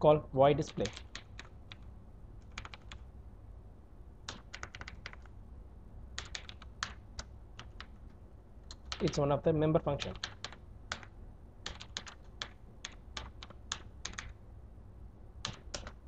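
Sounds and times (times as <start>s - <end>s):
steady low hum: 0.0s - 16.0s
computer keyboard typing: 0.7s - 3.0s, 4.2s - 5.3s, 6.2s - 8.0s, 8.7s - 9.2s, 10.0s - 14.4s, 15.4s - 16.0s.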